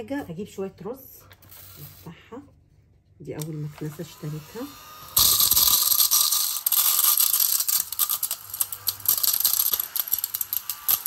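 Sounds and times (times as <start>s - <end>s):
mini vacuum running: 3.4s - 11.0s
rice grains clicking: 5.2s - 11.0s.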